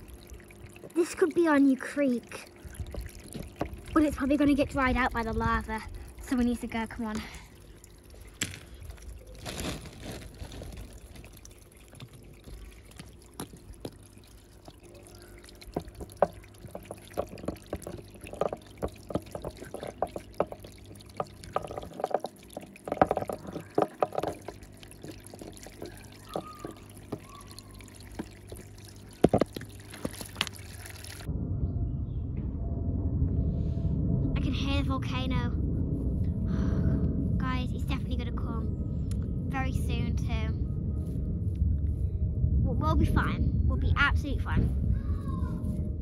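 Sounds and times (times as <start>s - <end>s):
water trickling over stones: 0.0s - 31.3s.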